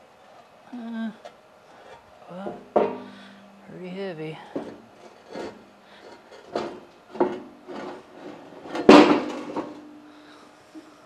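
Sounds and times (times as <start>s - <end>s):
heavy metal table scraping and clunking: 4.5s - 9.8s.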